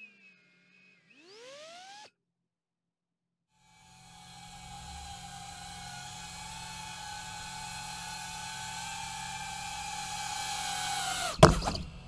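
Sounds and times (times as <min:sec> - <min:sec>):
drone motors whining: 0:00.0 - 0:02.1, 0:03.6 - 0:12.0
small knocks: 0:11.2 - 0:12.0
thump on wooden deck: 0:11.4 - 0:12.0.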